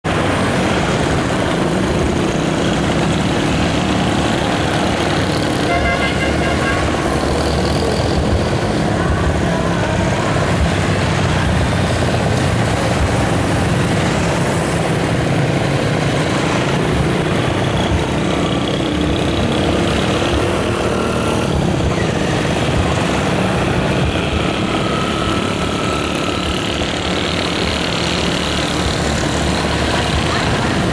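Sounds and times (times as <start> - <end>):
motorbikes and scooters passing: 0.1 - 30.9.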